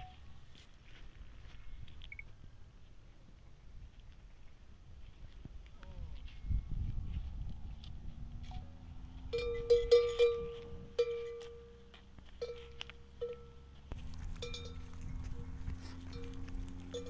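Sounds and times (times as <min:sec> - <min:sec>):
metal bell clanking: 0:09.3 - 0:17.0.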